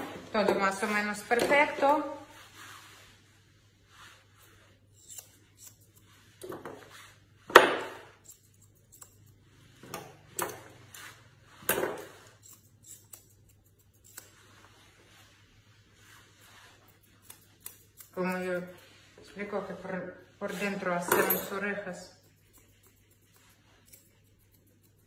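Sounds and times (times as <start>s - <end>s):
scissors snipping: 5.0s - 6.0s, 7.7s - 9.4s, 12.0s - 14.4s, 17.1s - 18.8s, 22.2s - 25.0s.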